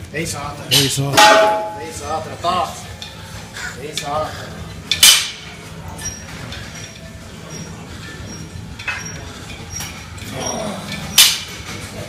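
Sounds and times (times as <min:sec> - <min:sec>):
weight plates clanking: 0:01.2 - 0:02.1.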